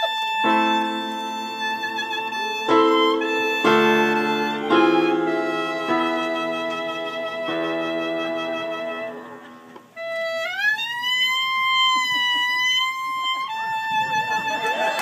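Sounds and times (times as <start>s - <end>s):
clarinet playing: 0.0s - 15.0s
digital keyboard chords: 0.4s - 10.0s.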